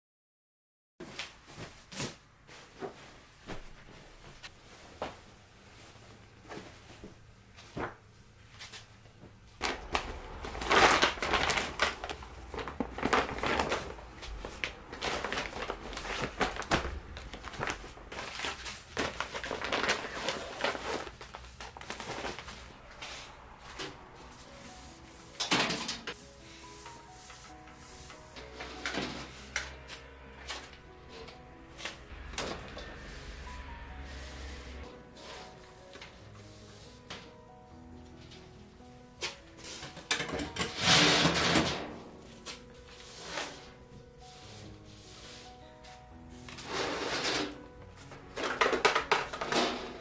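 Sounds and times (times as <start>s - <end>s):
bag and blanket crinkling: 9.6s - 23.8s.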